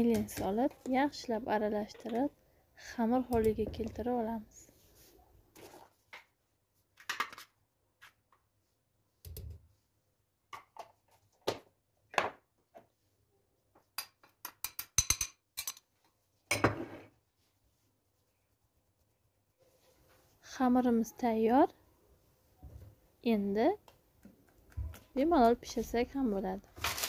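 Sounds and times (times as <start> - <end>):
spoon and sieve clinking on glass bowl: 14.6 - 15.9.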